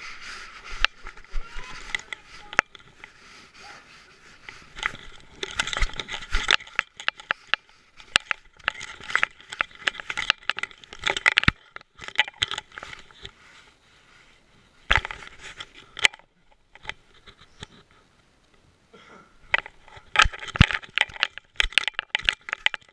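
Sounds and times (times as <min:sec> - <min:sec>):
fur and strap rubbing on camera: 0:00.0 - 0:11.4, 0:12.6 - 0:15.9.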